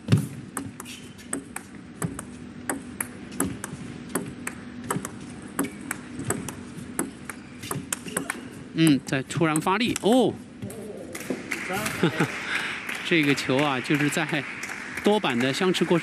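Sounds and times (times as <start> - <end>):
table tennis ball clicks: 0.5 - 8.4.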